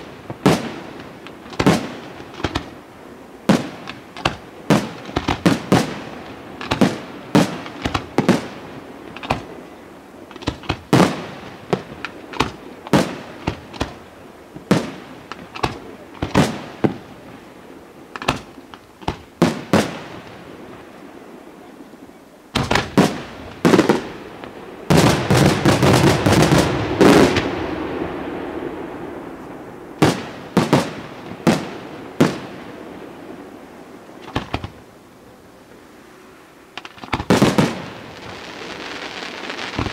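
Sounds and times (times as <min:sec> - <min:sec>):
firework shells bursting: 0:00.0 - 0:02.8, 0:03.5 - 0:09.6, 0:10.3 - 0:17.2, 0:18.1 - 0:20.4, 0:22.6 - 0:28.0, 0:34.1 - 0:34.9, 0:36.8 - 0:39.9
firework crackle: 0:00.0 - 0:39.9.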